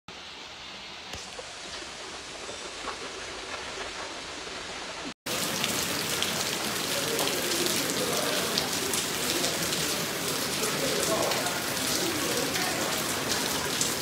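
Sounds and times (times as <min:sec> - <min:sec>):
floodwater churning: 0:01.1 - 0:14.0
water dripping from ceiling: 0:05.3 - 0:14.0.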